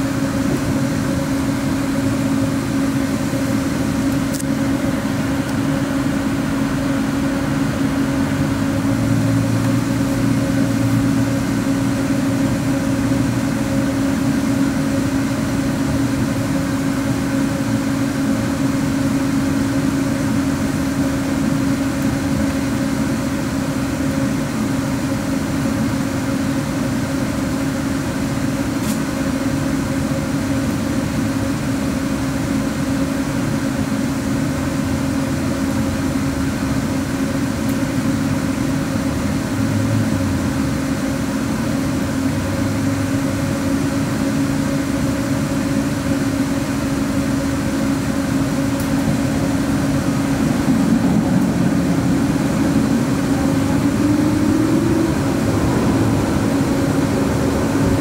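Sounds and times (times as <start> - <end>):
tram running hum: 0.0 - 58.0.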